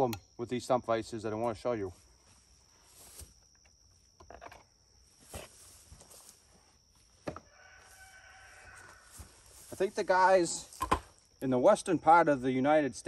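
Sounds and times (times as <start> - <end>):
footsteps through grass: 1.8 - 3.5, 5.0 - 11.3.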